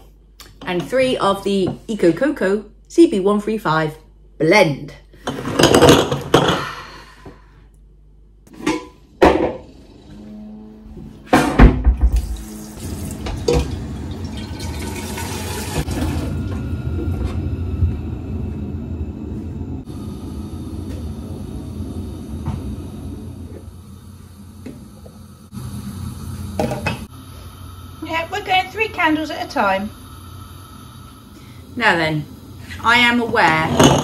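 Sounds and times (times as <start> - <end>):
tap water running into pot: 12.0 - 16.6, 26.3 - 27.1.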